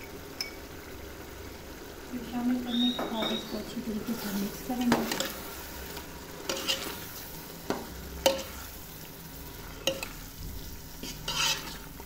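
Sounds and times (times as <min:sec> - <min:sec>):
faint sizzle of frying: 0:00.0 - 0:12.0
ladle scraping metal pot: 0:06.4 - 0:08.8, 0:11.0 - 0:12.0.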